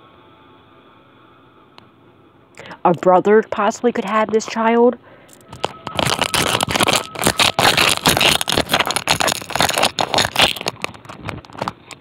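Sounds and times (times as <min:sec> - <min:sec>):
handling noise scraping and crackling: 0:05.3 - 0:12.0.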